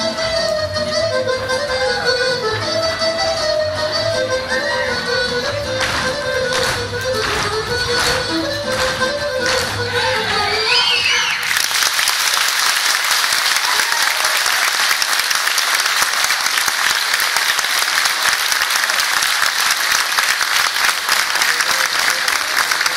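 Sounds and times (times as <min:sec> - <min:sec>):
audience applauding: 0:11.3 - 0:22.9.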